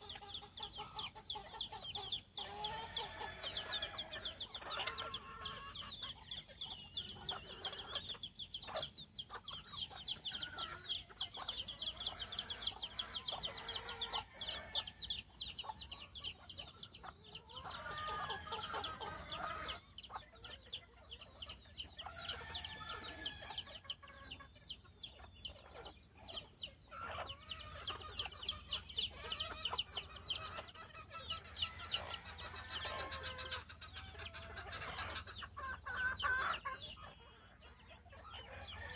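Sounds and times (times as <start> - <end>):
chickens clucking: 0.0 - 38.9.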